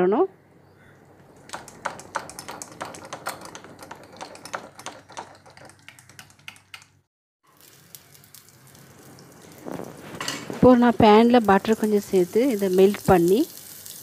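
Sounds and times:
whisk beating batter in bowl: 1.5s - 6.8s.

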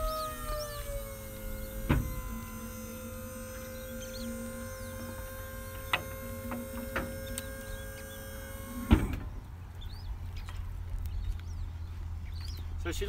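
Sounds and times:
hydraulic pump running: 0.0s - 9.4s
loud thump: 1.8s - 2.3s.

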